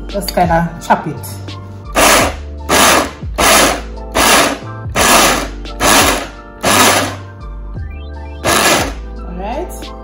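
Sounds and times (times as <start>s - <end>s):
blender pulsing: 2.0s - 7.3s, 8.4s - 9.0s.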